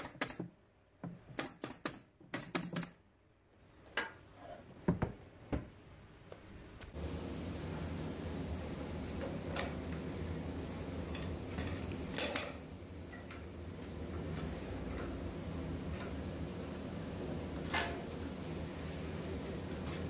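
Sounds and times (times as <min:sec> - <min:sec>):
steady low hum: 0:06.0 - 0:20.0.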